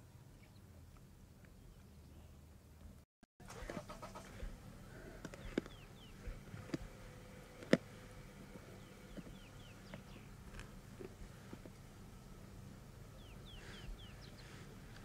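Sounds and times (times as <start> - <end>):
lions crunching bone: 3.7 - 11.8
bird chirps: 5.3 - 6.3, 8.8 - 10.3, 13.2 - 14.6.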